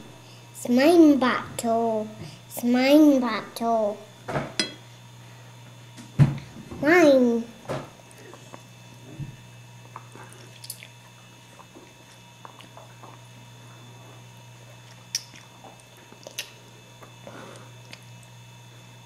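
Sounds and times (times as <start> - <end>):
toddler chewing and slurping: 9.8 - 13.3, 14.6 - 18.2.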